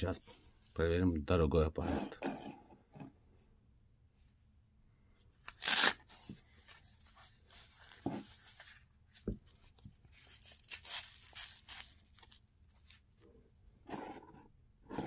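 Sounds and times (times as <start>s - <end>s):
hook-and-loop strap ripped open: 5.4s - 6.0s
cuff rustling: 5.5s - 13.3s.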